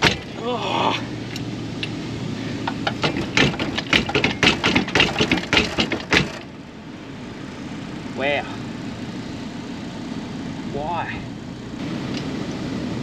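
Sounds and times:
metal clunks and rattles: 0:00.0 - 0:00.4, 0:02.6 - 0:06.5
vehicle engine idling: 0:00.0 - 0:13.0.

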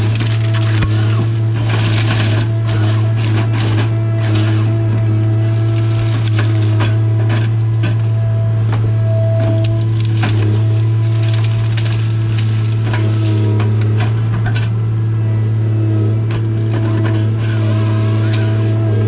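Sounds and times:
brush and saplings snapping: 0:00.0 - 0:04.5, 0:05.3 - 0:07.4, 0:09.4 - 0:14.1
diesel engine running: 0:00.0 - 0:19.0
hydraulic whine: 0:00.0 - 0:19.0.

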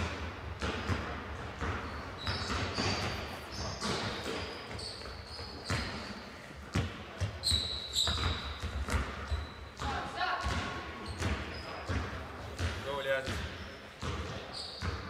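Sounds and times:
ball bouncing on wooden floor: 0:00.0 - 0:15.0
short high squeaks: 0:02.2 - 0:06.2, 0:07.4 - 0:08.6.

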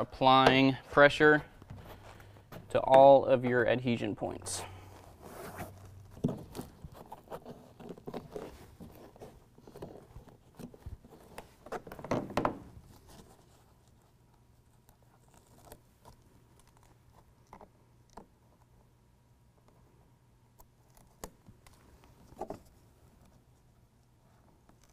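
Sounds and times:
hands rustling carpet panel: 0:01.6 - 0:03.1, 0:04.9 - 0:14.0.

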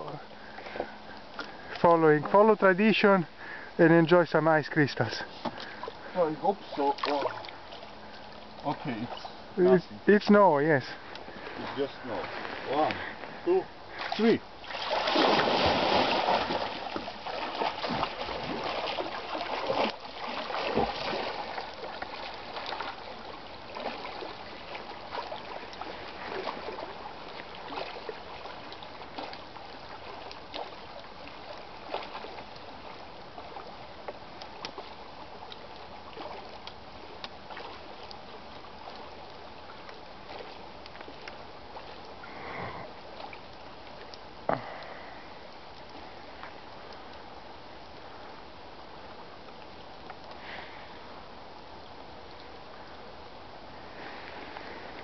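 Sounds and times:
swimming strokes splashing: 0:05.2 - 0:09.4, 0:10.9 - 0:45.2
person jumping into water: 0:13.9 - 0:32.5, 0:44.4 - 0:45.3.

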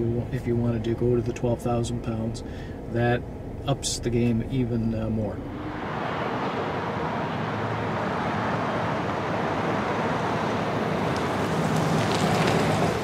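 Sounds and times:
pickup truck engine: 0:00.0 - 0:13.0
tyre noise on asphalt: 0:05.5 - 0:13.0.

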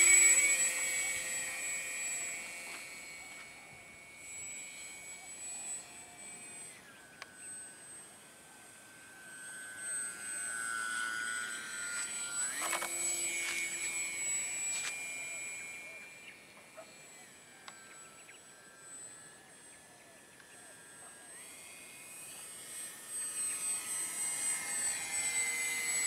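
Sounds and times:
electric motor and propeller whine: 0:00.0 - 0:26.0
thin steady high whine: 0:00.0 - 0:26.0.

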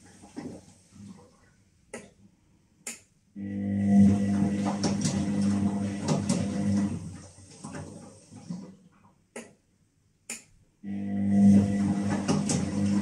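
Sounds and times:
washing machine motor hum: 0:03.4 - 0:09.5, 0:10.8 - 0:13.0.

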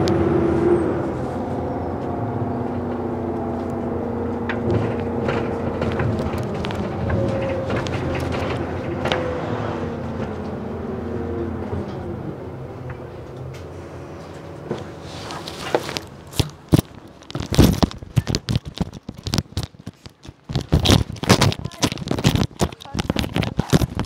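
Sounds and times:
bus engine hum: 0:00.0 - 0:24.0
wheeled suitcase rattling over paving: 0:02.5 - 0:12.1, 0:14.3 - 0:24.0.

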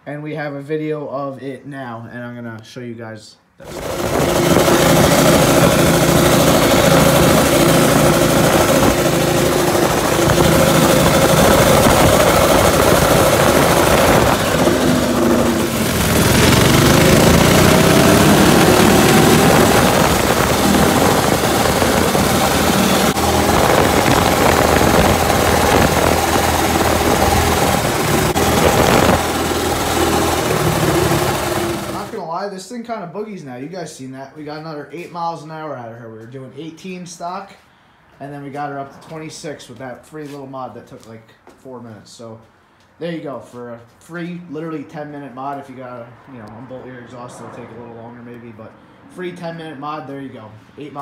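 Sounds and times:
mini bike engine running hard: 0:03.6 - 0:32.2.

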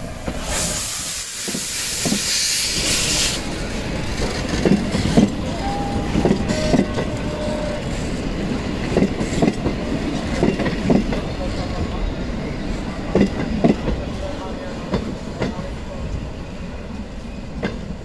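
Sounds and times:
steam locomotive hissing: 0:00.0 - 0:17.4
train wheels clicking over rail joints: 0:00.2 - 0:11.9.

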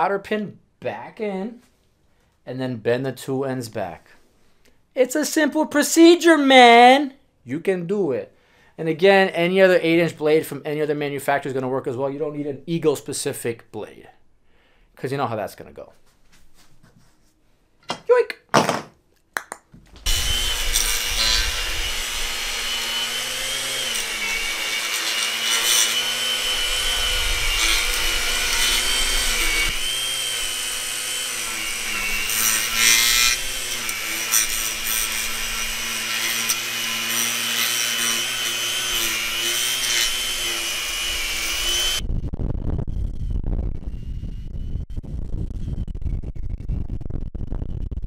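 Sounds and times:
lawn edger motor whine: 0:20.0 - 0:34.0, 0:40.0 - 0:42.0.

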